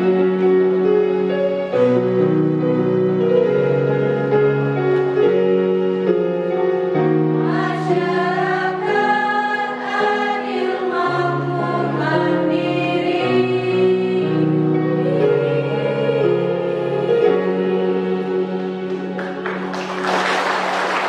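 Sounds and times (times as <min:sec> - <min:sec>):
held keyboard chords: 0:00.0 - 0:20.9
women's choir singing: 0:07.4 - 0:19.7.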